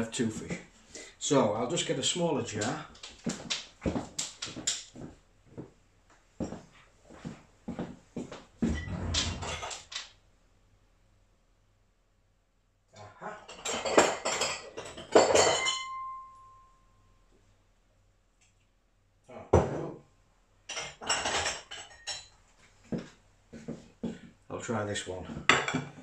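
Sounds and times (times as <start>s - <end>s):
glass jars clattering and clinking: 13.5s - 16.1s, 20.7s - 22.3s.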